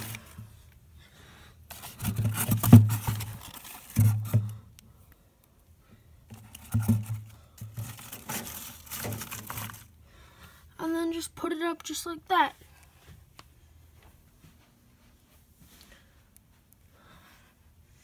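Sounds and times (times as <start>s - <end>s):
rustling and scraping: 0.0s - 0.6s, 1.7s - 4.6s, 6.3s - 10.0s.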